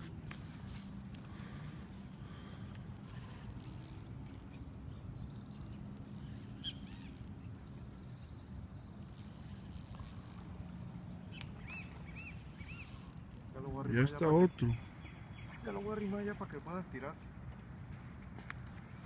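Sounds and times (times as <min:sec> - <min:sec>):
steady low hum: 0:00.0 - 0:19.0
spinning reel whirring: 0:03.0 - 0:05.0, 0:05.8 - 0:07.9, 0:09.0 - 0:10.5, 0:12.4 - 0:13.5.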